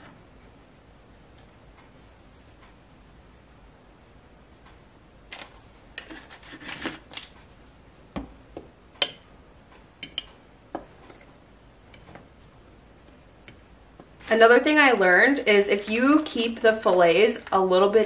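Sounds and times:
seasoning shaker rustling: 1.9s - 3.2s, 5.4s - 7.7s.

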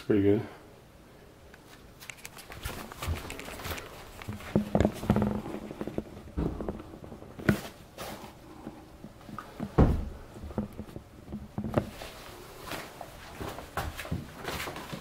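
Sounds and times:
heavy thud: 9.6s - 10.7s.

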